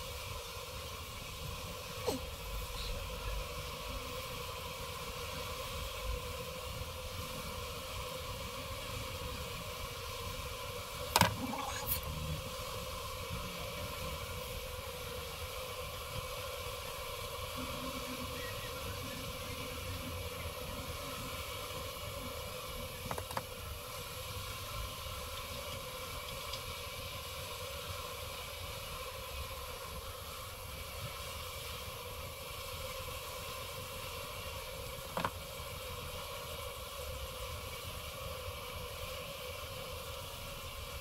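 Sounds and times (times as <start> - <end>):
steady hum: 0.0 - 27.8.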